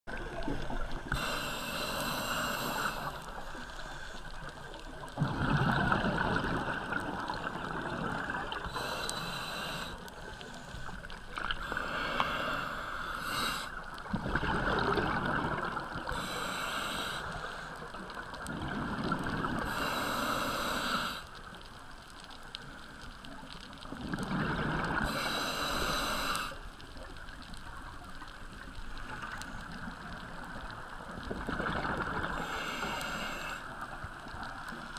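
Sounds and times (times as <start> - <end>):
breaths through a diving regulator: 1.1 - 5.9, 8.1 - 13.8, 16.0 - 18.0, 19.5 - 21.4, 24.8 - 26.6, 32.2 - 33.8
exhaled bubbles rushing: 5.1 - 8.7, 14.1 - 16.1, 31.2 - 32.4.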